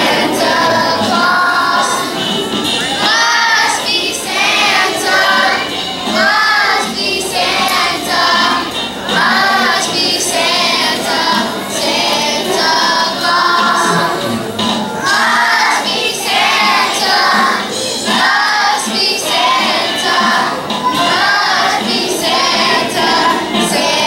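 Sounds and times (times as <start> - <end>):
children's choir singing: 0.0 - 24.0.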